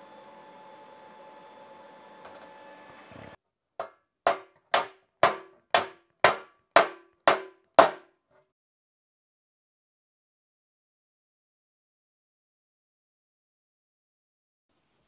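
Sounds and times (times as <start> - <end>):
hammer striking metal tank: 3.8 - 8.1.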